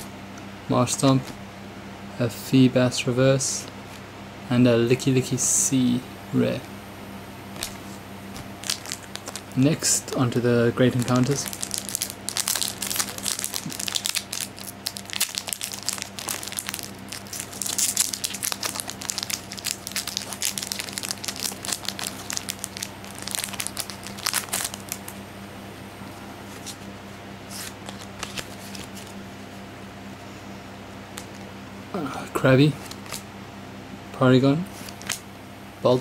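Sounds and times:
low steady hum: 0.0s - 36.0s
foil wrapper crinkling and tearing: 7.6s - 9.6s, 10.8s - 25.2s, 27.5s - 29.1s, 32.8s - 33.2s, 34.7s - 35.2s
cards rustling and ticking: 7.6s - 25.2s, 27.5s - 29.2s, 31.1s - 31.5s, 32.8s - 33.2s, 34.7s - 35.2s.

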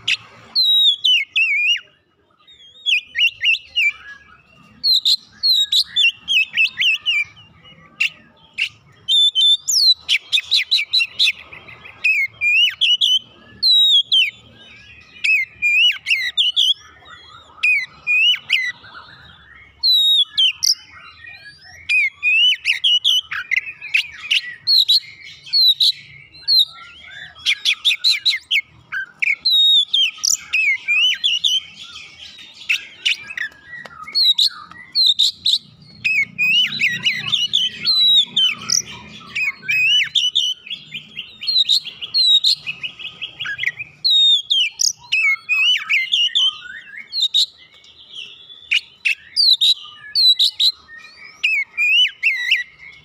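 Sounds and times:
bird singing varied song: 0.0s - 53.0s.

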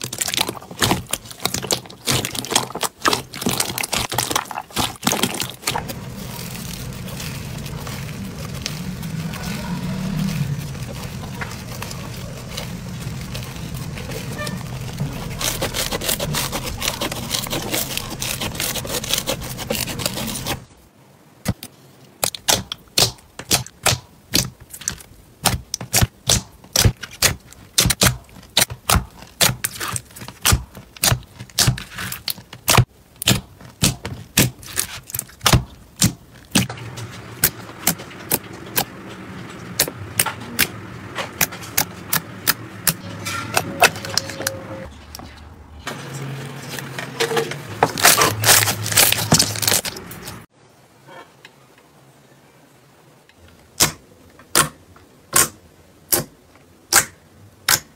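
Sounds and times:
slime crackling: 0.0s - 20.7s, 22.2s - 39.0s, 47.8s - 50.5s.

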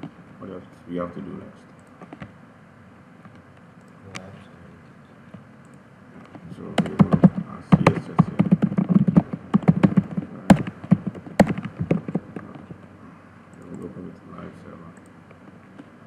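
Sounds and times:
typing on keyboard: 6.7s - 12.8s.

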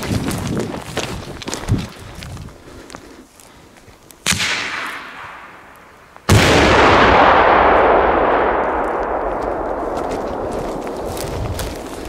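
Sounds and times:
firework blast with rumbling echo: 6.3s - 12.0s.

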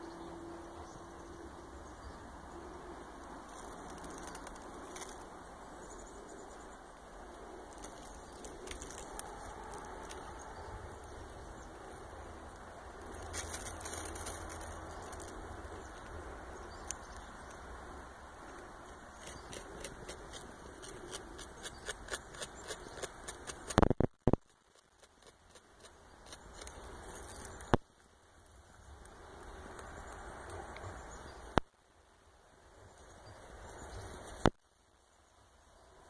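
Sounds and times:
beaver gnawing bark: 3.2s - 5.4s, 6.9s - 31.0s
steady background hiss: 24.6s - 36.0s.

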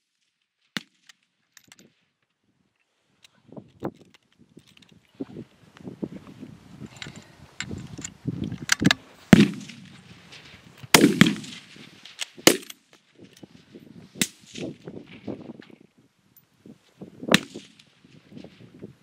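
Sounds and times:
rifle shots: 9.3s - 10.0s, 10.9s - 12.8s, 17.3s - 17.9s.

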